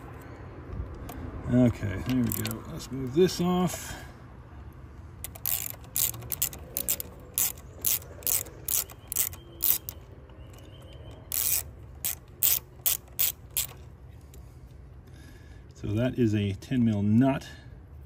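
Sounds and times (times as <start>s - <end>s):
socket ratchet clicking: 2.0s - 2.6s, 5.2s - 14.0s.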